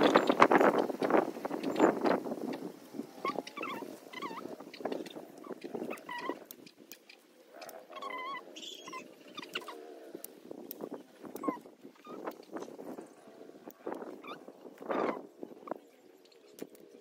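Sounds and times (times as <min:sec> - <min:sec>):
animal wavering cries: 0:03.2 - 0:06.5, 0:07.6 - 0:10.3, 0:11.2 - 0:12.3.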